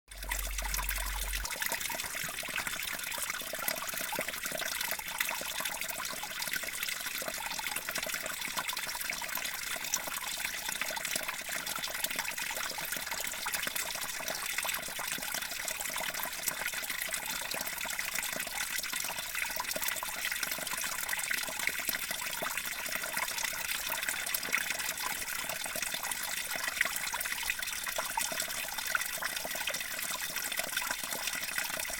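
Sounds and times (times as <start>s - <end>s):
meltwater dripping into pool: 0.1s - 8.1s.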